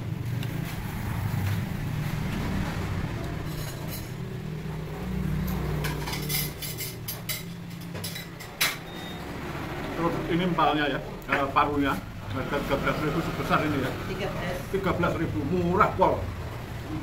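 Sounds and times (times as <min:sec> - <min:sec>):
road traffic rumble: 0:00.0 - 0:17.0
dishes and cutlery clinking: 0:03.4 - 0:04.4, 0:05.4 - 0:09.2.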